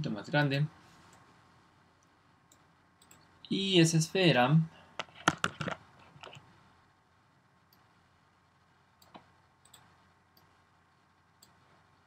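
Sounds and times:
computer mouse and keyboard clicks: 0:05.0 - 0:06.5.

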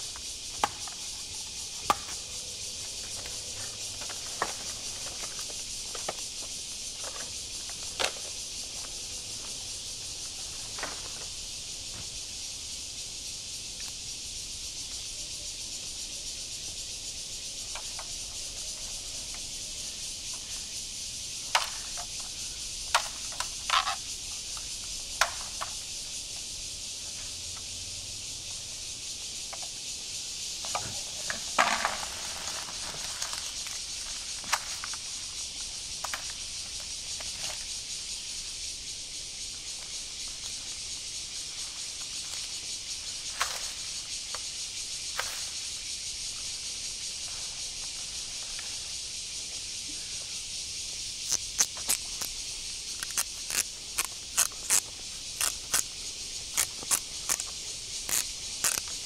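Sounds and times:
insects hissing: 0:00.0 - 0:59.0
machete cutting bamboo: 0:01.8 - 0:02.2, 0:53.0 - 0:55.9, 0:56.5 - 0:57.5, 0:58.1 - 0:59.0.

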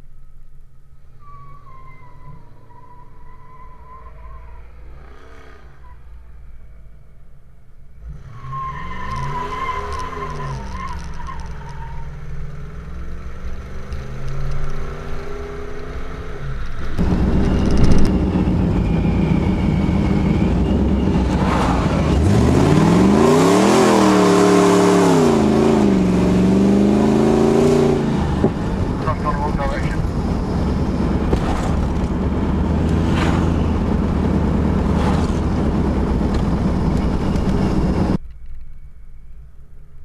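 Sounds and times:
wind and road noise: 0:00.0 - 0:40.0
car engine revving: 0:07.9 - 0:38.2.

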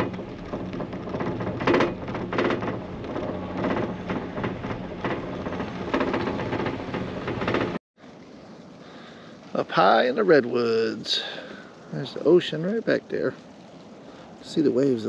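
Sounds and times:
gondola mechanical rumble: 0:00.0 - 0:07.8
rattling clacks: 0:00.0 - 0:07.8.

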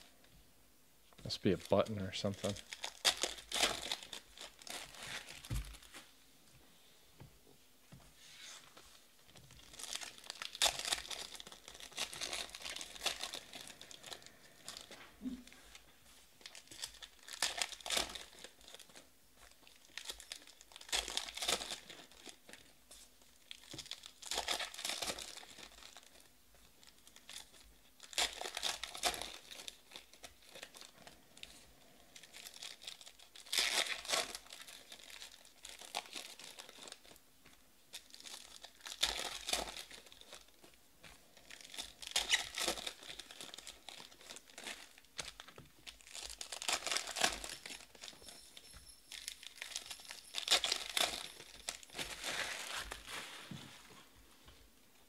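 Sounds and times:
card pack wrappers tearing: 0:02.2 - 0:05.9, 0:09.6 - 0:14.9, 0:16.4 - 0:22.7, 0:23.5 - 0:30.9, 0:32.2 - 0:37.2, 0:37.9 - 0:40.5, 0:41.4 - 0:48.4, 0:49.1 - 0:53.4.

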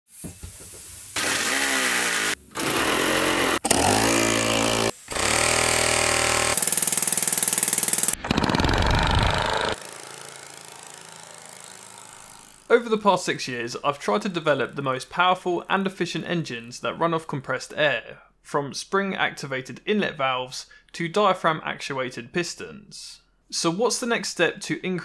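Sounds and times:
small air piston engines running: 0:01.2 - 0:12.7.

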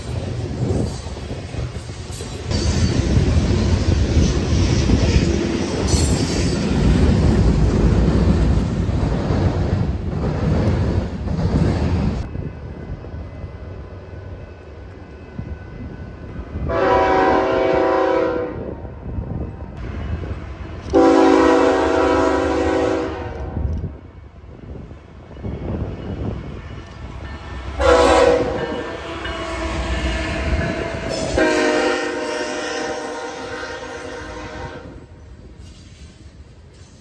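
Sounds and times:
freight train wheel and rail rumble: 0:00.0 - 0:37.0
locomotive air horn: 0:16.7 - 0:18.7, 0:20.9 - 0:23.6, 0:27.8 - 0:35.1.

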